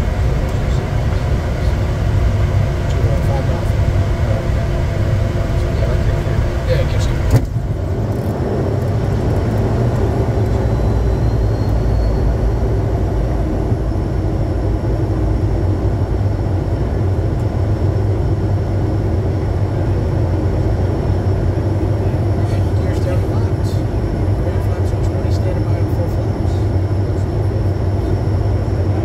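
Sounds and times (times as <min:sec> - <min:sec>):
jet cabin engine rumble: 0:00.0 - 0:29.0.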